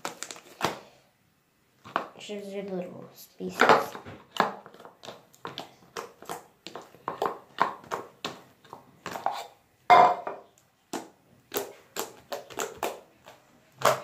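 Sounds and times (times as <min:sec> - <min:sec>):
bowl clunk: 0:09.9 - 0:10.4.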